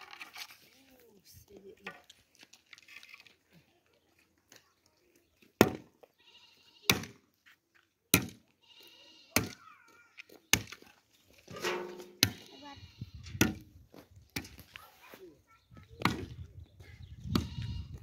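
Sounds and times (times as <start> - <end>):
shovel striking straw and earth: 11.5 - 12.5.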